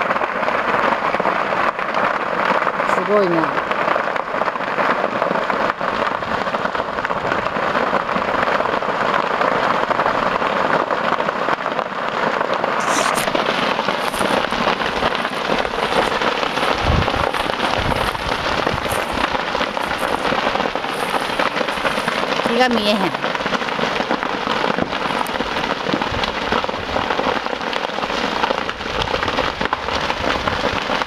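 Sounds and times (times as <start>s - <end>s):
fire crackling and popping: 0.0s - 31.0s.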